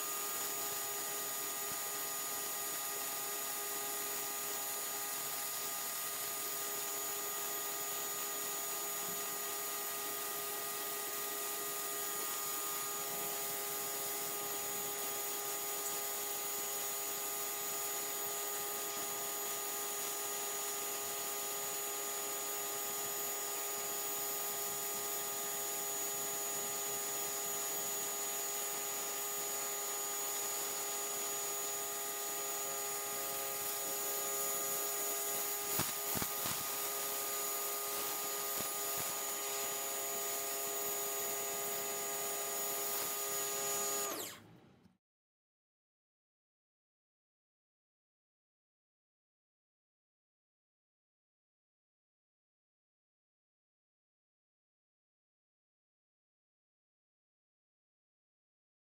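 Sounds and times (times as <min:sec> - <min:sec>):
electric motor whine: 0:00.0 - 0:44.5
water jet spraying onto concrete: 0:35.4 - 0:39.4.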